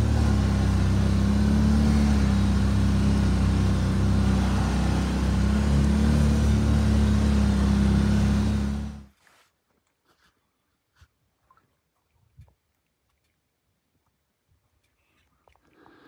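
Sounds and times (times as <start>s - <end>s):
atv engine droning: 0.0s - 9.1s.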